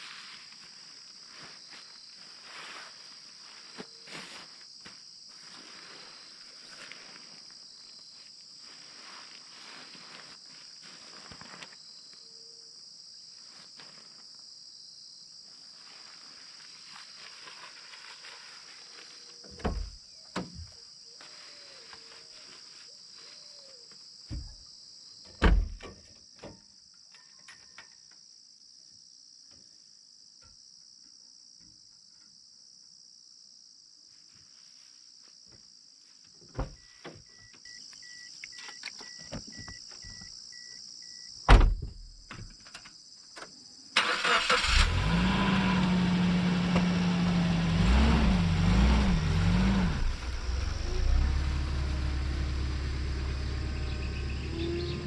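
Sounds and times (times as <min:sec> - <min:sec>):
insects chirring: 0:00.0 - 0:45.6, 0:48.5 - 0:55.0.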